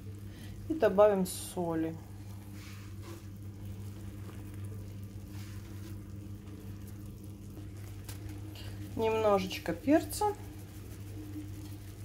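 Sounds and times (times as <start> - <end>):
low hum: 0.0 - 12.0
faint crackles: 1.9 - 12.0
food sizzling in frying pan: 2.2 - 12.0.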